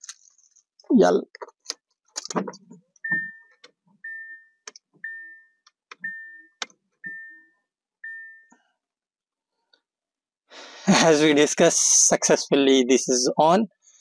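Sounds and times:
dashboard warning chime beeping: 3.0s - 8.6s.

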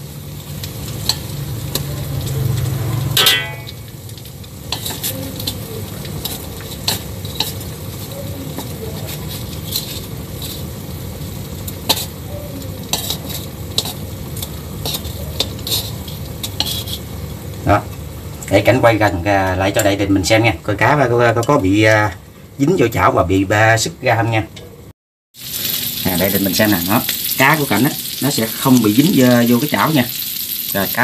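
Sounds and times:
fish sizzling in hot oil: 0.0s - 20.9s, 25.3s - 31.0s
utensils clicking against pan: 0.6s - 10.7s, 11.6s - 17.1s
ringing scrape on pan: 2.8s - 3.9s, 14.8s - 17.1s.

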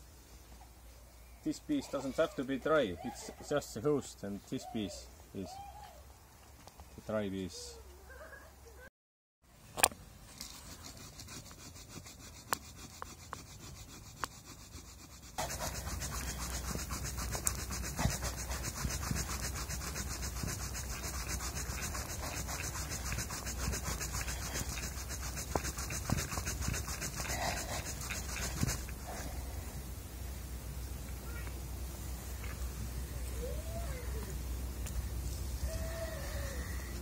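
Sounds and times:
stick scraping on wooden board: 10.3s - 29.2s.

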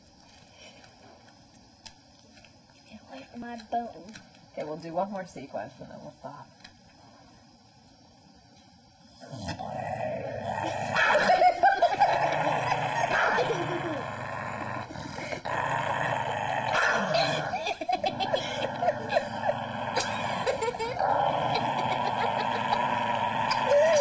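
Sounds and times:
dog growling and whining: 9.2s - 24.0s.

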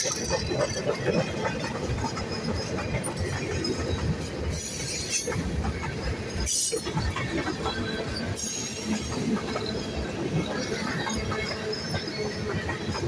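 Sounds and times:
train wheels rumbling on rails: 0.0s - 13.0s
high-pitched wheel squeals: 8.0s - 13.0s.

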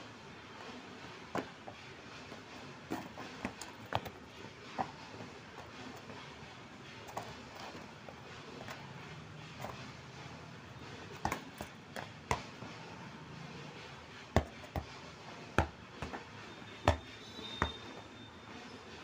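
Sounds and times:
football thudding on hard floor: 11.2s - 12.5s, 15.6s - 16.2s, 16.8s - 17.9s.

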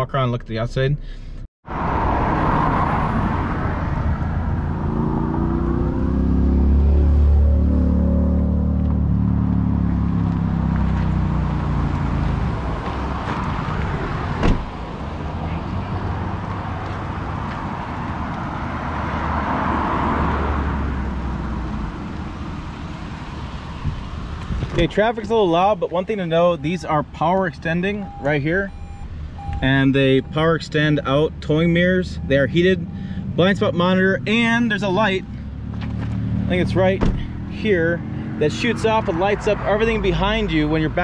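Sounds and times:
highway traffic rumble: 1.0s - 41.0s
passing vehicles rushing: 1.6s - 41.0s
low engine hum: 1.7s - 41.0s.

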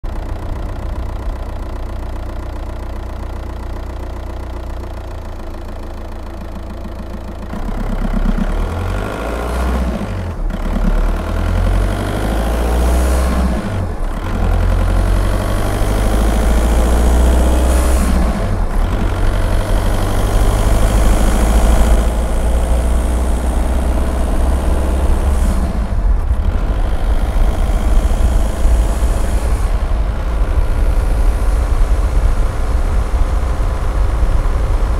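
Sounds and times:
diesel car engine: 0.0s - 34.9s
wind noise: 24.7s - 34.9s.

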